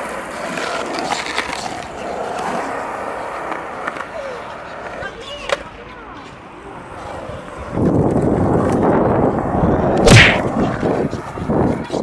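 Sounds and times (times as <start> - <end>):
skateboard clacking on concrete: 0.0 - 8.9
skateboard wheels rolling on concrete: 0.0 - 12.0.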